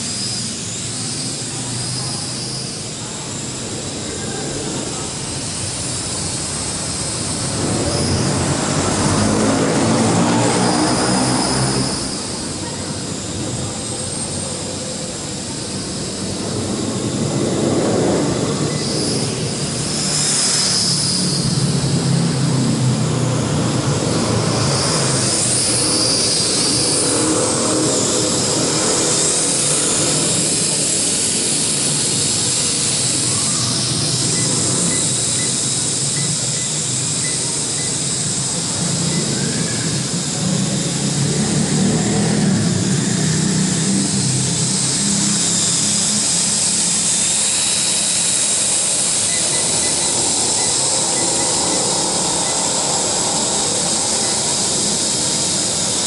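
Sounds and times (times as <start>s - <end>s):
toy drone propellers buzzing: 0.0s - 56.0s.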